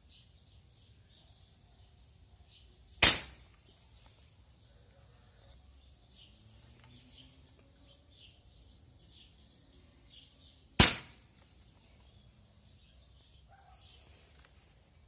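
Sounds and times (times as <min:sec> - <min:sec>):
faint bird chirps: 0:00.0 - 0:10.8, 0:11.4 - 0:14.7
rifle shot: 0:03.0 - 0:03.5, 0:10.8 - 0:11.3.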